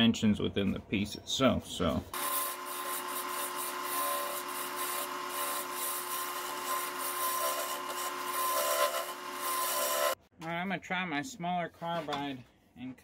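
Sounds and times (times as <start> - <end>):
turning tool scraping wood: 2.1 - 10.2
wood lathe motor whine: 2.2 - 10.2.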